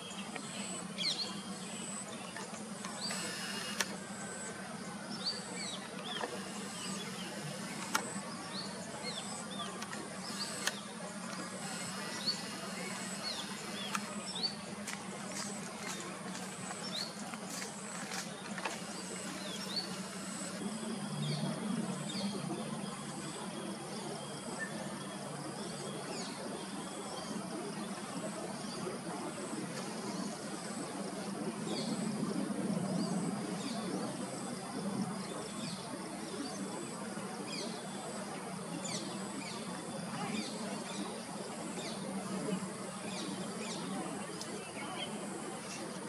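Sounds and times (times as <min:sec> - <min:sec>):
small birds chirping: 0:00.0 - 0:20.6
thin high whine: 0:00.0 - 0:25.0.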